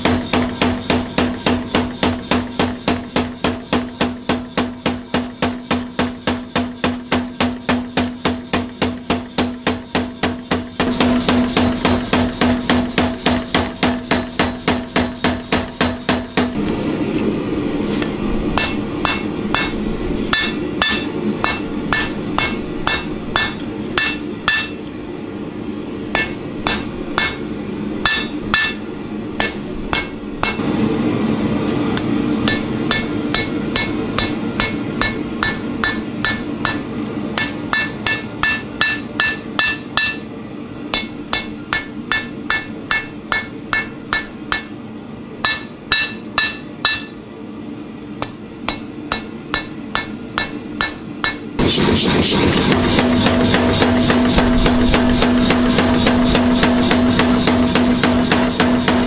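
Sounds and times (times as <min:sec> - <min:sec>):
hammer striking ringing anvil: 0:18.6 - 0:24.8, 0:26.2 - 0:28.8, 0:29.4 - 0:30.6, 0:32.4 - 0:40.3, 0:41.0 - 0:44.8, 0:45.4 - 0:47.2, 0:48.2 - 0:51.8.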